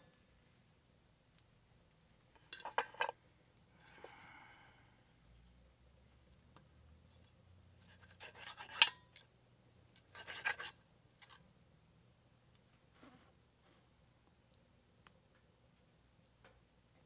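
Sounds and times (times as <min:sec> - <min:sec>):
knife scraping enamel pan: 0:07.8 - 0:09.2, 0:10.0 - 0:11.4.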